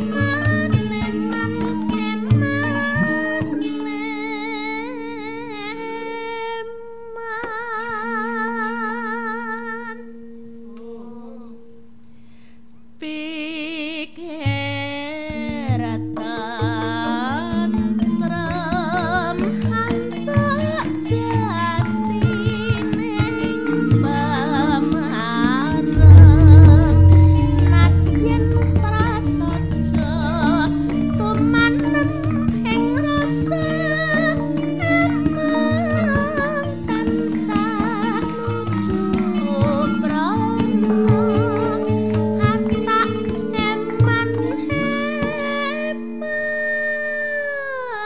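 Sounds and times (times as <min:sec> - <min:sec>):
gamelan ensemble playing: 0:25.9 - 0:33.7
woman singing with vibrato: 0:26.0 - 0:42.1.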